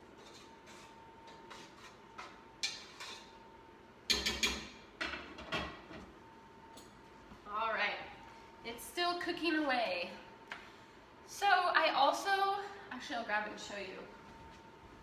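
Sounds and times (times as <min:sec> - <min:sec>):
faint steady hum: 0:00.0 - 0:15.0
cookware knocks and metal clinks: 0:04.1 - 0:05.8.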